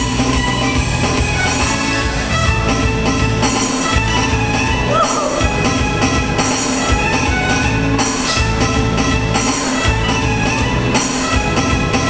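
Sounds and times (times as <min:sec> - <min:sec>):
music with steady drum beat: 0:00.0 - 0:12.0.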